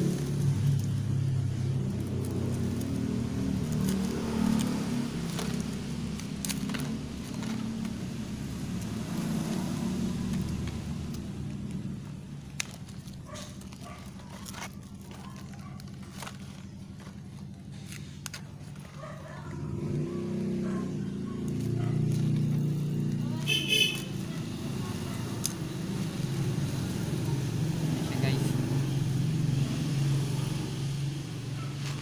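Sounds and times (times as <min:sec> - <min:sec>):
vehicle engine running: 0:00.0 - 0:32.0
scissors snipping plastic: 0:00.7 - 0:19.5, 0:25.2 - 0:25.6.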